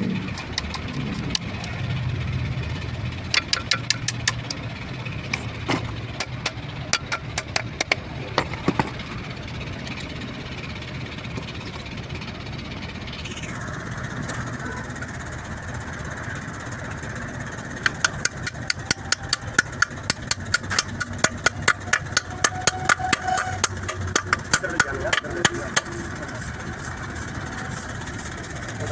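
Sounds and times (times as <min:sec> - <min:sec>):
low engine hum: 0:00.0 - 0:28.9
hammer tapping metal: 0:03.3 - 0:04.6, 0:06.2 - 0:08.0, 0:17.8 - 0:26.1.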